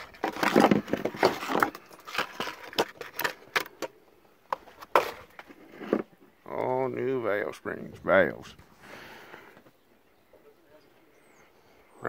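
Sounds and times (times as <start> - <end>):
cardboard boxes rustling: 0.0 - 3.9.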